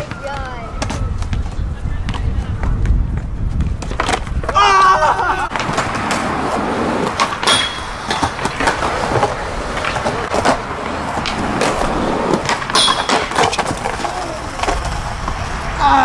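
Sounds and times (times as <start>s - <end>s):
skateboard clacking on ground: 0.0s - 4.6s, 5.5s - 16.0s
skateboard wheels rolling on concrete: 0.0s - 16.0s.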